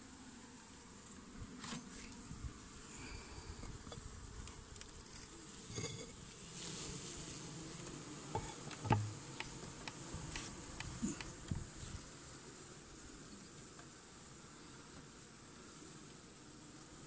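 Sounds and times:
bees buzzing: 0:00.0 - 0:17.0
dull knock: 0:08.4 - 0:09.2.

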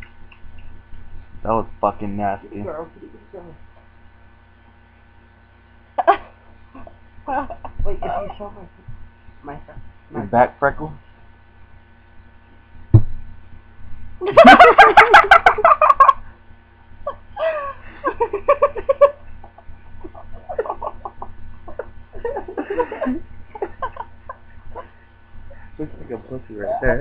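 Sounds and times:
people giggling: 0:06.0 - 0:08.4, 0:14.2 - 0:16.3, 0:17.0 - 0:25.1
people laughing: 0:14.2 - 0:16.2, 0:17.1 - 0:25.1.

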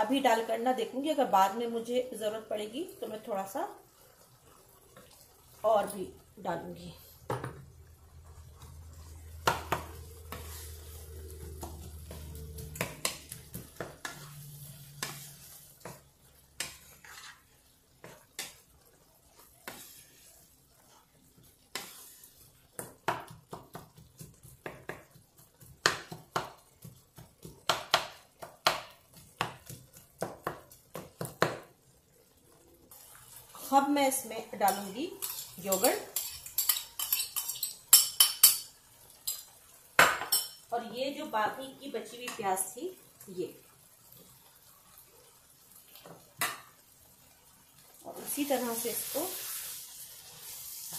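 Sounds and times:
faint sizzle of frying: 0:00.0 - 0:50.9
spatula tapping against pan: 0:09.4 - 0:10.4
wooden spatula scraping a pan: 0:09.7 - 0:23.0, 0:32.9 - 0:37.6.

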